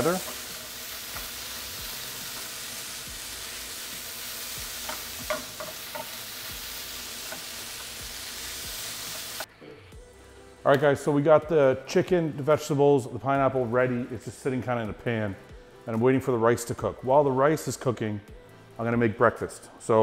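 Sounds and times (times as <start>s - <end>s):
food sizzling in a frying pan: 0.0s - 9.5s.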